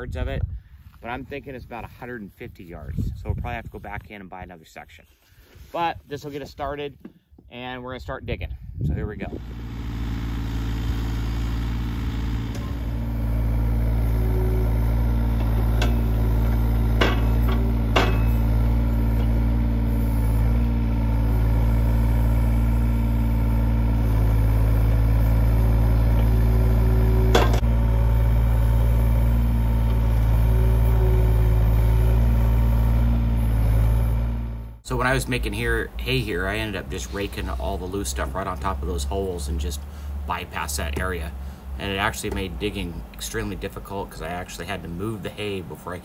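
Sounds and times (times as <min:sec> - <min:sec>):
excavator diesel engine running: 0:09.3 - 0:46.0
sharp knocks: 0:15.8 - 0:18.5.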